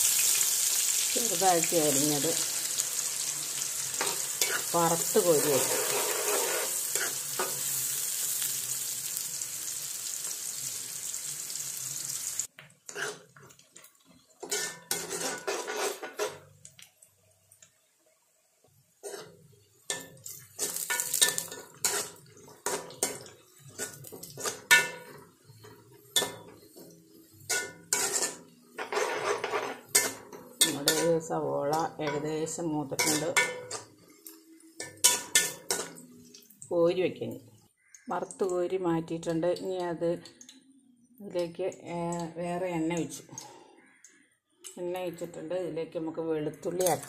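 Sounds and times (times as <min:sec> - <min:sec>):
onions sizzling in oil: 0:00.0 - 0:16.4, 0:17.9 - 0:36.7
metal ladle scraping pan: 0:02.7 - 0:07.9, 0:12.9 - 0:13.3, 0:14.4 - 0:16.4, 0:19.0 - 0:26.9, 0:27.5 - 0:31.3, 0:33.0 - 0:33.9.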